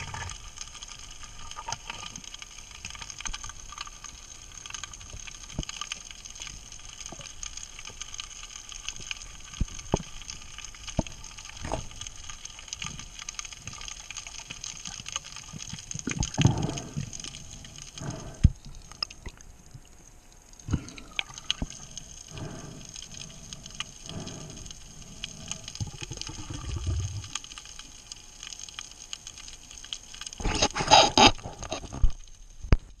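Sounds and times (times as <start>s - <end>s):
faint high hum: 0.0s - 33.0s
water sloshing and splashing: 9.5s - 28.0s.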